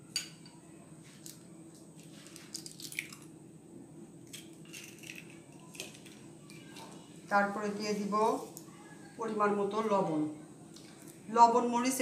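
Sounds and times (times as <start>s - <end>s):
eggshell cracking: 2.4s - 3.3s, 4.3s - 6.9s.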